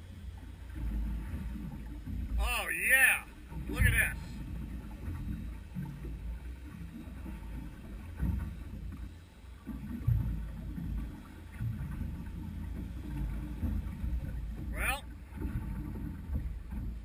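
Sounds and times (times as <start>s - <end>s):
water slapping boat hull: 0.0s - 17.0s
knocks on boat: 3.6s - 6.0s.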